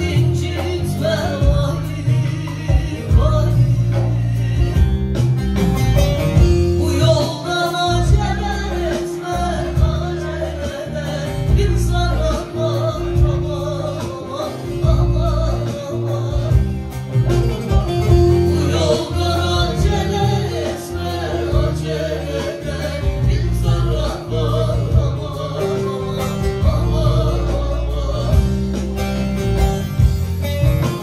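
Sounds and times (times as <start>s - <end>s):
person singing: 0.0s - 5.2s, 6.4s - 29.3s
keyboard accompaniment: 0.0s - 31.0s
strummed long-necked lute: 0.0s - 31.0s.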